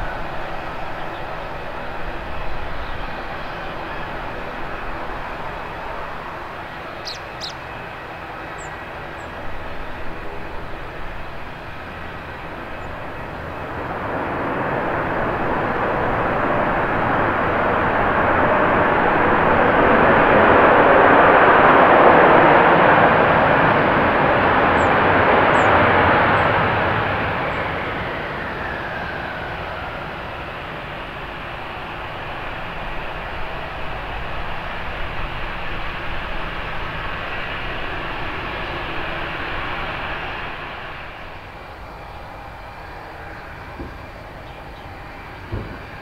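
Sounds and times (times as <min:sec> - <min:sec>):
jet engines reverse thrust: 0:00.0 - 0:46.0.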